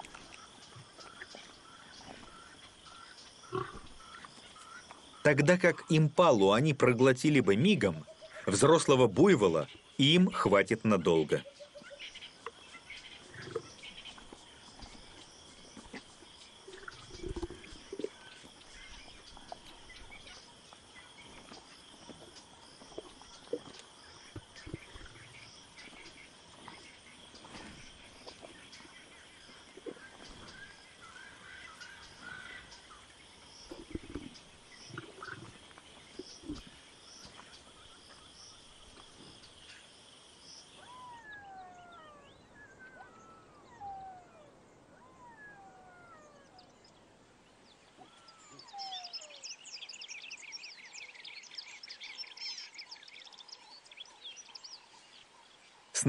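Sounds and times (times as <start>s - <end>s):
lions growling: 0.8s - 4.2s, 13.1s - 20.4s, 21.0s - 38.1s, 40.8s - 46.7s.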